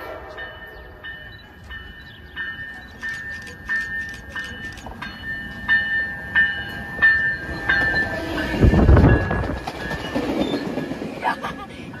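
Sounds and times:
train rumble: 0.0s - 12.0s
bell ringing: 0.4s - 10.2s.

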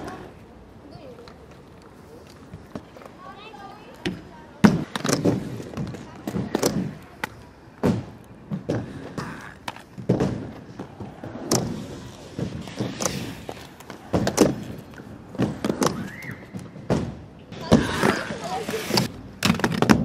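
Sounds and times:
inline skates thudding on ramp: 4.0s - 20.0s.

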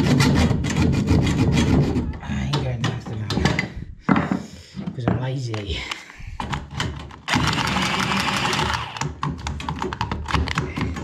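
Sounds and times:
hacksaw cutting copper pipe: 0.0s - 2.1s, 6.8s - 9.2s.

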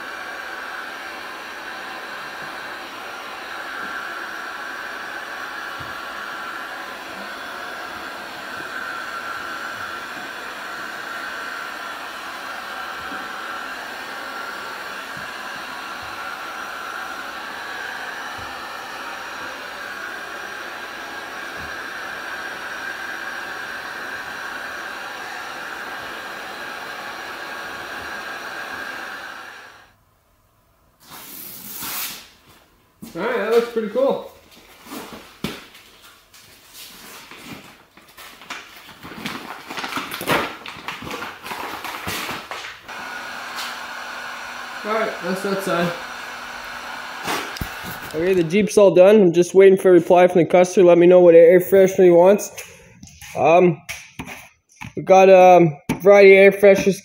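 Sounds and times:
heat gun blowing air: 0.0s - 30.0s, 31.0s - 32.4s, 33.1s - 34.2s, 39.6s - 49.2s.

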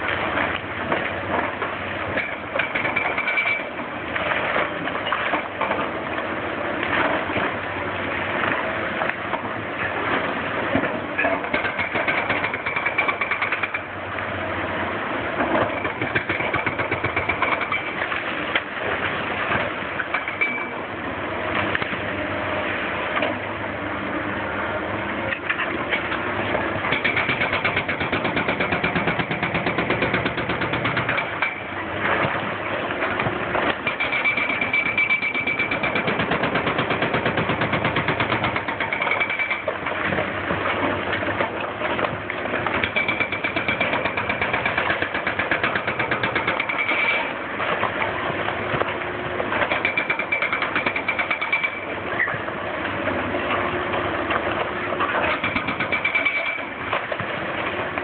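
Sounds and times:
hydraulic breaker hammering concrete: 11.3s - 13.9s, 15.5s - 18.0s, 26.9s - 31.7s, 33.7s - 39.9s, 42.7s - 47.3s, 49.6s - 51.9s, 55.2s - 56.9s.

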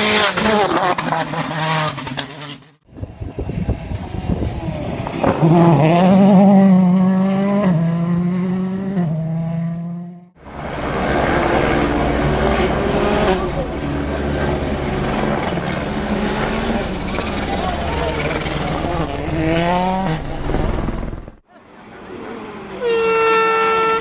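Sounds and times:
rally car engines revving: 0.0s - 21.4s.

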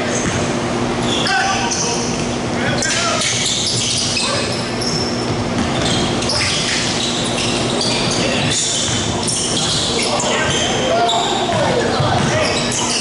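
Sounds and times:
sneakers squeaking on floor: 0.0s - 13.0s
basketball bouncing on court: 3.1s - 12.9s.

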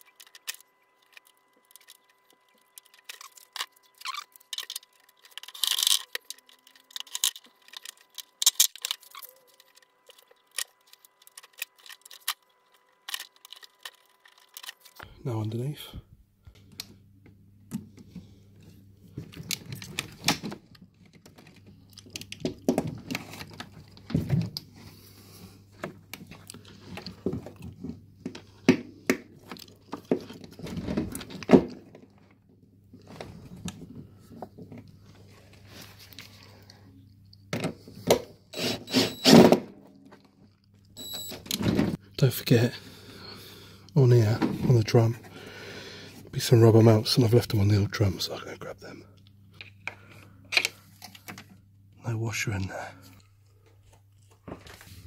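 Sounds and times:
clicks and knocks of handled parts: 0.0s - 15.1s, 49.2s - 51.6s
steady low hum: 0.0s - 55.0s.

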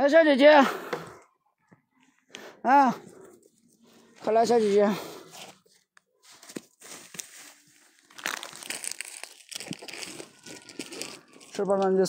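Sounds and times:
crinkling and rustling: 3.1s - 12.0s
small crackles and clicks: 8.1s - 12.0s.

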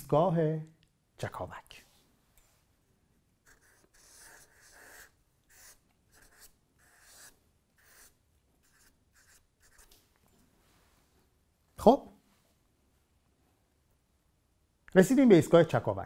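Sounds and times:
marker drawing on paper: 3.4s - 10.0s.

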